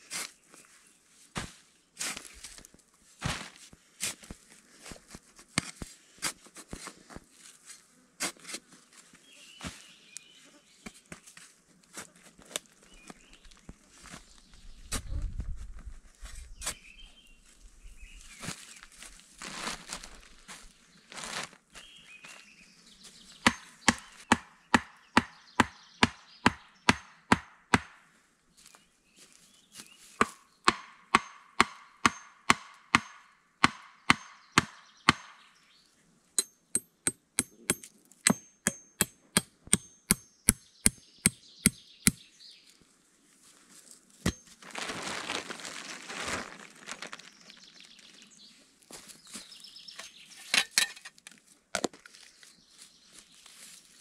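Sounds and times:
rustling: 0:18.3 - 0:21.6, 0:43.4 - 0:50.6
wood being chopped: 0:23.5 - 0:28.0, 0:30.2 - 0:35.4, 0:44.2 - 0:44.5.

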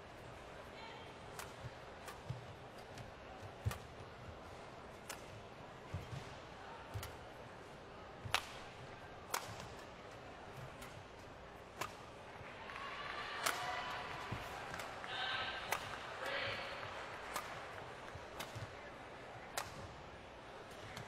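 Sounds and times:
crowd noise: 0:00.0 - 0:21.0
racket hitting shuttlecock: 0:01.3 - 0:04.0, 0:04.9 - 0:07.3, 0:08.2 - 0:10.0, 0:10.6 - 0:12.4, 0:13.4 - 0:18.8, 0:19.5 - 0:19.9
soft footfalls on court: 0:01.3 - 0:12.6.

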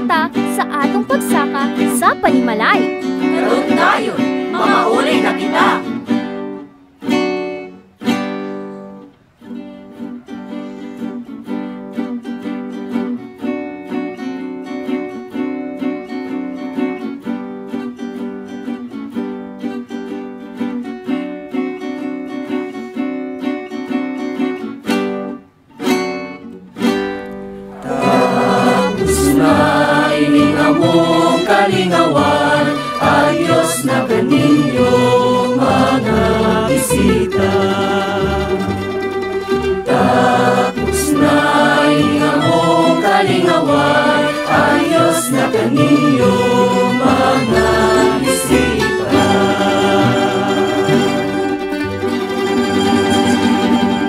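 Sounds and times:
strummed string accompaniment: 0:00.0 - 0:54.0
group singing: 0:03.1 - 0:06.2, 0:27.7 - 0:54.0.

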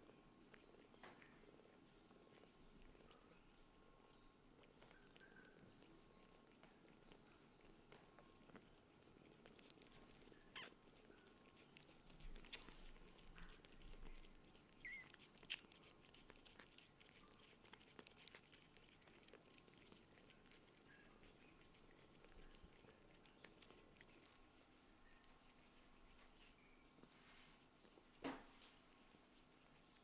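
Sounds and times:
cat licking: 0:00.0 - 0:30.0
faint squeak: 0:25.0 - 0:27.6.

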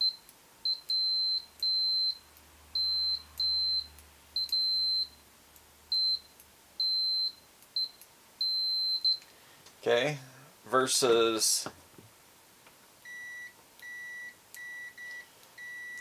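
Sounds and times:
high-pitched multimeter beeps: 0:00.0 - 0:05.2, 0:05.9 - 0:09.3, 0:13.0 - 0:16.0.

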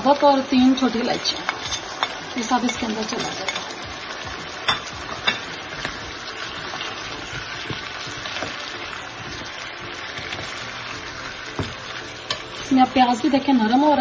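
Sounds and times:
food sizzling in a pan: 0:00.0 - 0:14.0
spatula scraping and tapping: 0:04.4 - 0:12.8.

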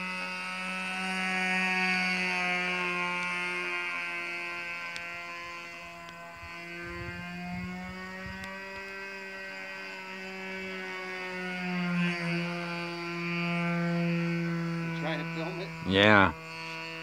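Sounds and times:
model airplane engine droning: 0:00.0 - 0:17.0
wind rumble on microphone: 0:06.2 - 0:09.0.

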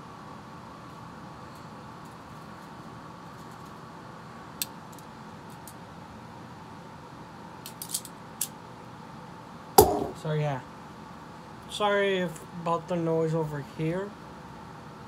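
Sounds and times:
electric fan whirring: 0:09.5 - 0:10.9.

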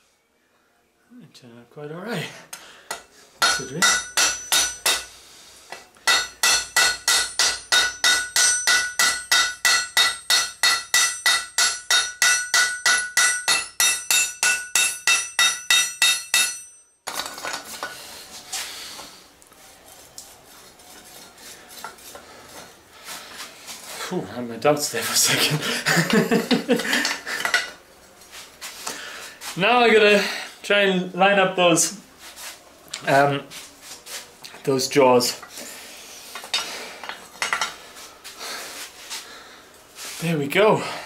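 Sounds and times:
hammer ringing on anvil: 0:02.9 - 0:05.1, 0:06.1 - 0:17.0.

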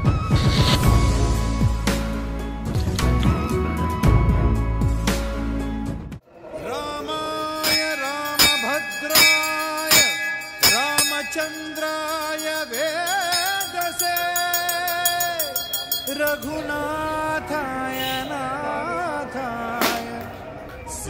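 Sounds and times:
sharp percussive strikes: 0:07.6 - 0:16.5.

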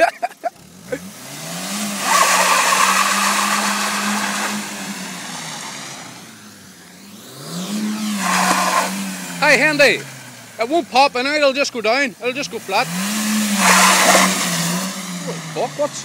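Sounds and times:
car engine revving: 0:00.0 - 0:16.0
tyres scrubbing on wet tarmac: 0:01.8 - 0:06.3, 0:07.7 - 0:11.4, 0:12.4 - 0:16.0.

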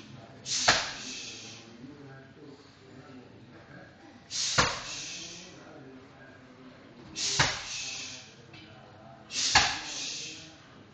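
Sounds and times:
short hiss: 0:04.3 - 0:05.4.

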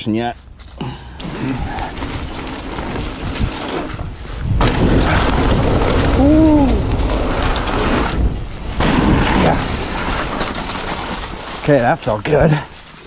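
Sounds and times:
bike tyres rolling over leaves: 0:00.4 - 0:13.0
wind buffeting microphone: 0:01.4 - 0:11.5.

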